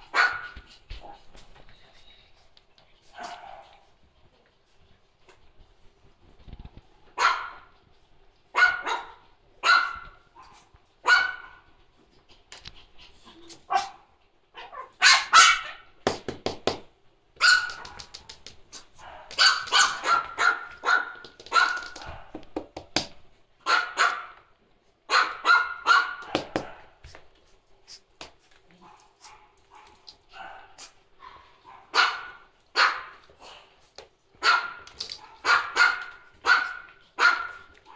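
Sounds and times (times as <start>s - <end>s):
puppies barking: 14.6s - 15.9s, 19.0s - 22.3s, 34.4s - 37.9s.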